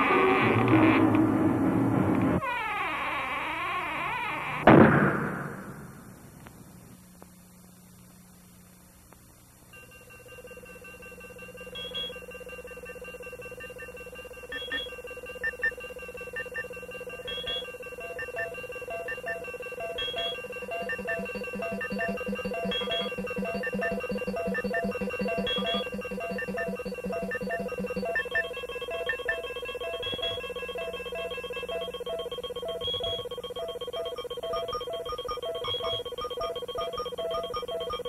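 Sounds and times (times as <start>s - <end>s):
electronic music with drone and beeps: 9.8s - 38.0s.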